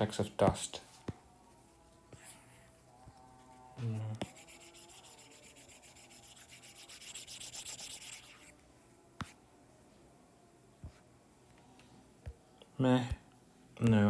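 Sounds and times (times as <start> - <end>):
stylus scribbling on glass screen: 2.1 - 8.6.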